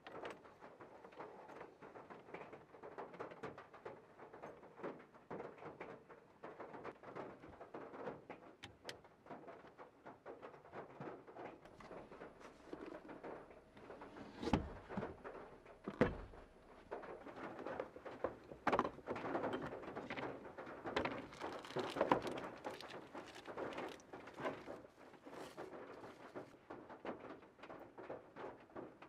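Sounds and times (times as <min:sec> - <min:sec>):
dull thunks: 0:15.8 - 0:16.4
cling film crinkling: 0:16.6 - 0:26.8.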